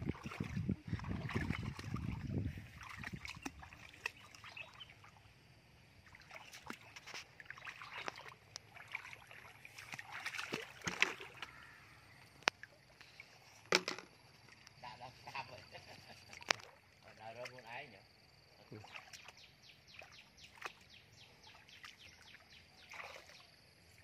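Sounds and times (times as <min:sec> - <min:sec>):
feet wading through muddy water: 0:00.0 - 0:13.4, 0:18.7 - 0:24.0.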